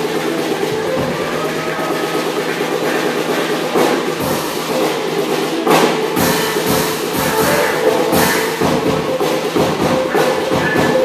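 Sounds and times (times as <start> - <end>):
music with percussion: 0.0 - 11.0
sharp accented hits: 5.6 - 11.0.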